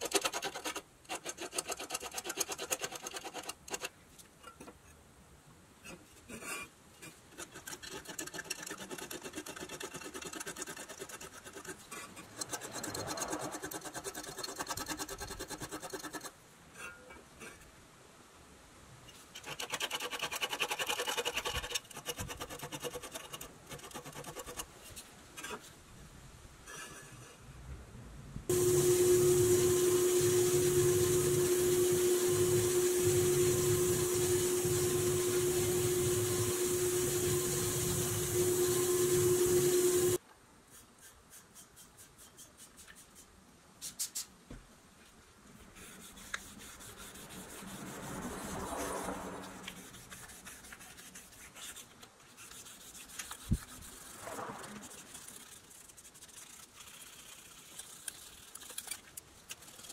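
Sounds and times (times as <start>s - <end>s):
steady hum: 28.3s - 40.2s
spray paint hissing: 28.5s - 40.2s.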